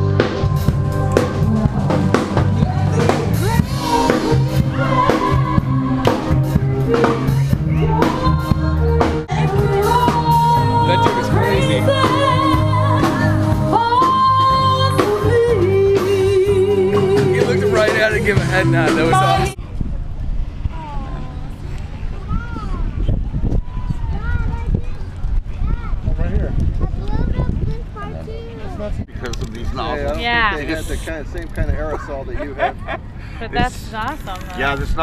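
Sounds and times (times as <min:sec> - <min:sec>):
drum kit beat: 0:00.0 - 0:19.6
bass line: 0:00.0 - 0:28.6.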